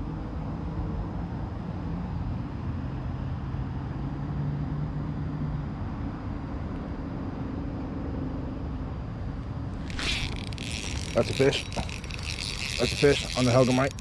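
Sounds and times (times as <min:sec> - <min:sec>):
vehicle engine rumble: 0:08.4 - 0:14.0.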